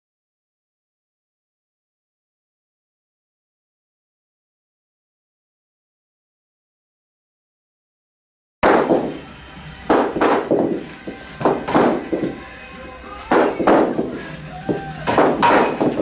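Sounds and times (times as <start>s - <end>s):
music playing: 8.6s - 16.0s.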